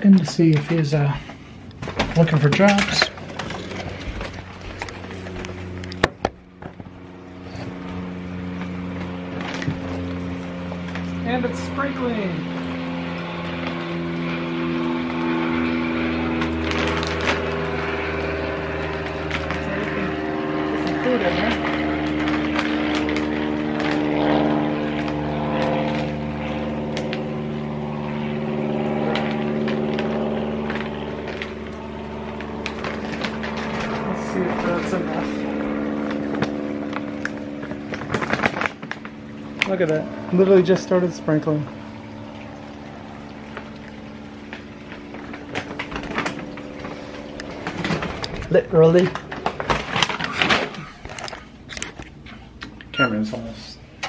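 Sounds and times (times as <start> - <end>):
low mechanical hum: 0.0 - 54.0.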